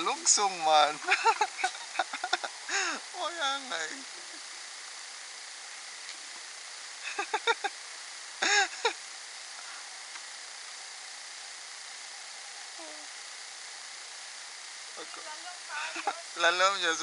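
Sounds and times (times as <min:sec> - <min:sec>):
steady hiss: 0:00.0 - 0:17.0
woman laughing: 0:01.0 - 0:03.0, 0:07.0 - 0:07.7, 0:08.4 - 0:09.0, 0:15.8 - 0:16.3.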